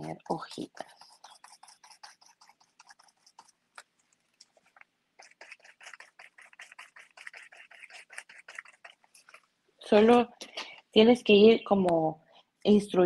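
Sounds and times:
sponge dabbing paint on paper: 0:00.0 - 0:10.3.

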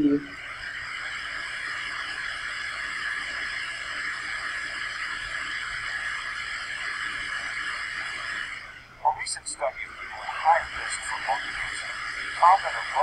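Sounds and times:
faint high whine: 0:00.0 - 0:13.0
steady hiss: 0:00.1 - 0:13.0.

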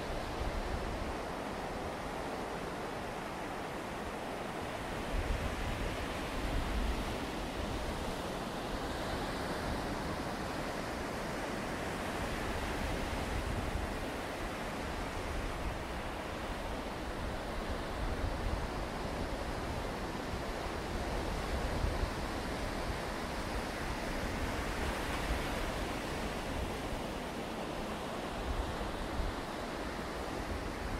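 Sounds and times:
sea surf: 0:00.0 - 0:30.9.

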